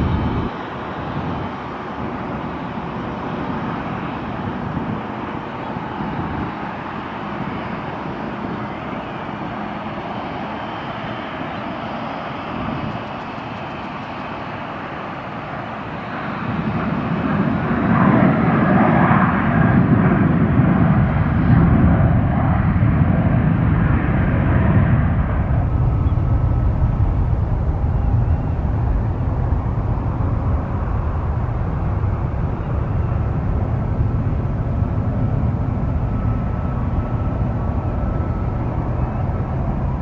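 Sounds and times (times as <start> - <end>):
jet engine rumble: 0.0 - 40.0.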